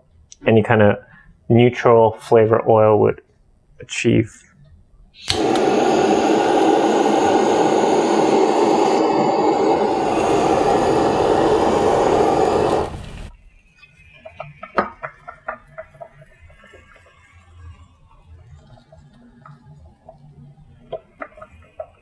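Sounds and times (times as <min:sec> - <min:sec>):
kitchen torch hissing: 0:05.2 - 0:13.4.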